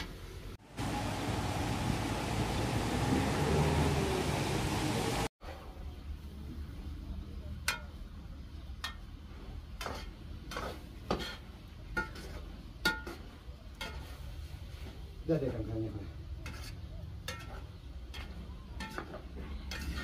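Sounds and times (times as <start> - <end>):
metal ladle scraping a pot: 16.4 - 20.0.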